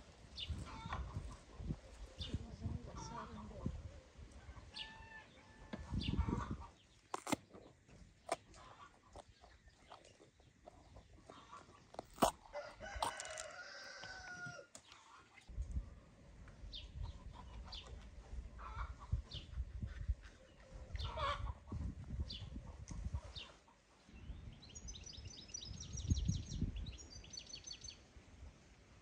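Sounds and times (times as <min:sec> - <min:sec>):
rooster crowing: 0:12.5 - 0:14.7.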